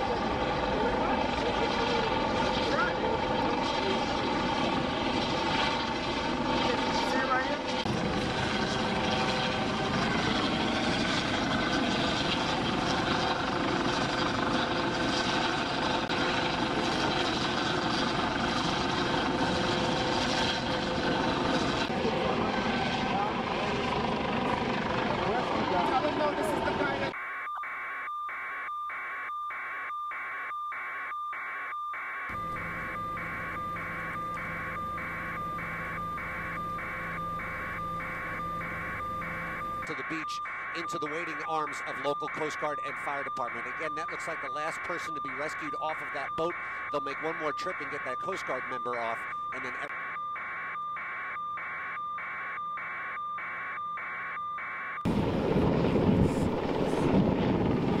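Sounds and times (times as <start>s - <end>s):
helicopter cabin noise: 0.0s - 58.0s
wind: 0.0s - 58.0s
low steady hum: 32.3s - 40.7s.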